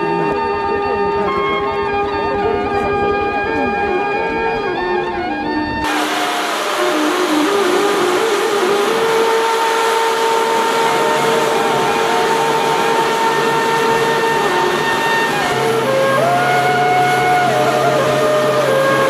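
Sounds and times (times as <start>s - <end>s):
helicopter turbine whine: 5.8s - 19.0s
rushing hiss: 5.9s - 19.0s.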